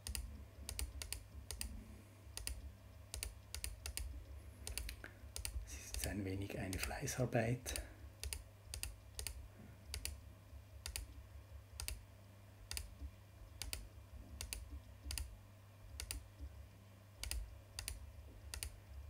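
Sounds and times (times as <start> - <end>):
computer mouse clicking: 0.0 - 6.1, 6.7 - 7.1, 7.7 - 10.2, 10.8 - 11.2, 11.8 - 12.0, 12.6 - 15.3, 15.9 - 16.6, 17.2 - 19.0
low steady hum: 0.0 - 19.0.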